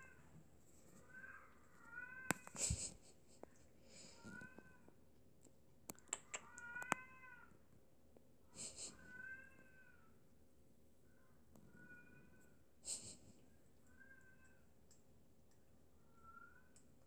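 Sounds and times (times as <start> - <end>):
cat meowing: 6.2 - 7.5.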